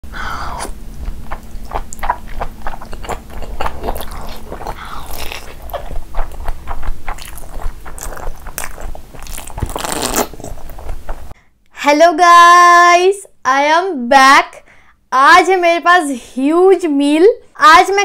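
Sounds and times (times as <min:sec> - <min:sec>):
wet squishy chewing: 0:00.4 - 0:11.3.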